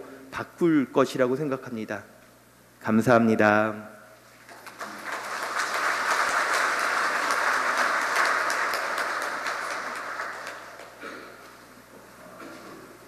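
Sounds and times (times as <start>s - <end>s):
congregation applauding: 4.4s - 11.6s.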